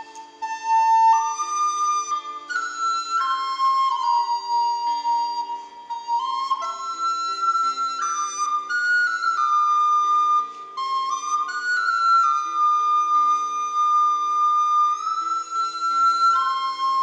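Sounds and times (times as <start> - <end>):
recorder playing slow melody: 0.0 - 17.0.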